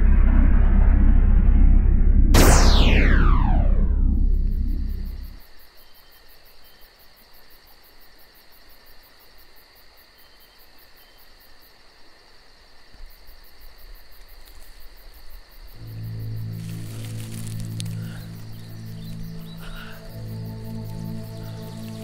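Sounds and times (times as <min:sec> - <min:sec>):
low steady drone: 0:00.0 - 0:05.4, 0:15.8 - 0:22.0
insect chirring: 0:04.4 - 0:22.0.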